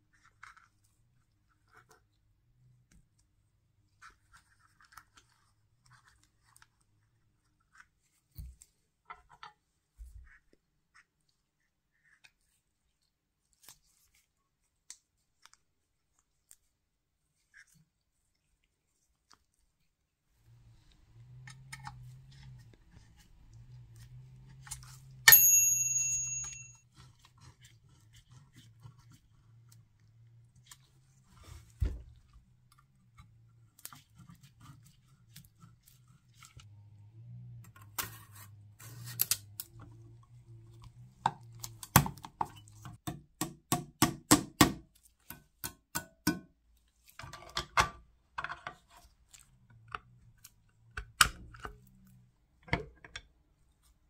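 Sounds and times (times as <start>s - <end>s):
metallic clink: 25.3s - 26.8s.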